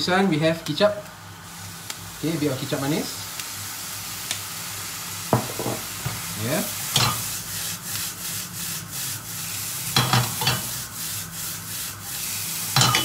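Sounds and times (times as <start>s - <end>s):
noodles sizzling in frying pan: 0.1s - 13.0s
spatula scraping pan: 6.9s - 9.3s, 9.9s - 13.0s.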